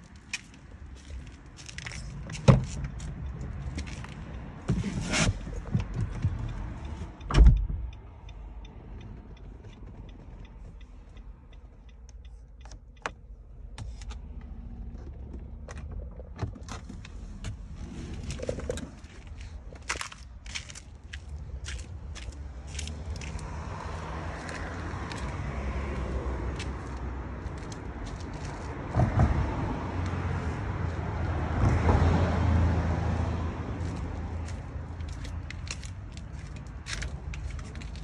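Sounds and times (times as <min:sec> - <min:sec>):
crunching footsteps: 0:00.0 - 0:03.1, 0:18.2 - 0:25.4, 0:26.6 - 0:28.8, 0:33.8 - 0:38.0
hazard light ticking: 0:06.3 - 0:13.8
car door thud: 0:07.3 - 0:07.8.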